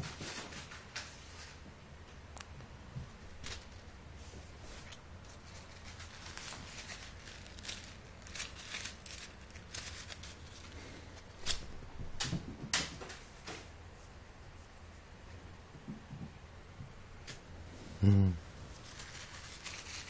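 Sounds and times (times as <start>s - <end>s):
paper ball rustling and crinkling: 0.0s - 1.7s, 3.2s - 11.8s, 18.5s - 20.0s.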